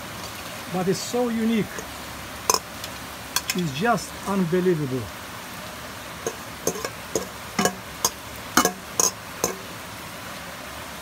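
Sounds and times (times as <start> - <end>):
utensils clinking on dishes: 6.3 - 9.6.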